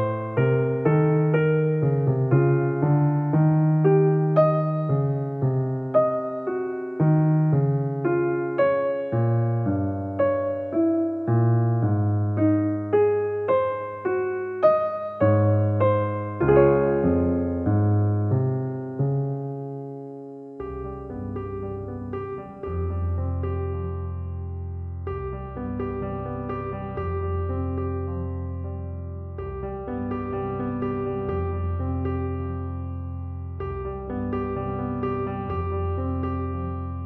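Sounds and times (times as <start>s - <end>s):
piano music: 0.0s - 37.0s.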